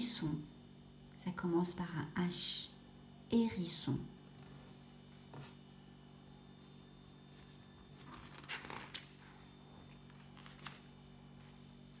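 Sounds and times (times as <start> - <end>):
faint steady hum: 0.0 - 12.0
paper page turning: 6.2 - 12.0.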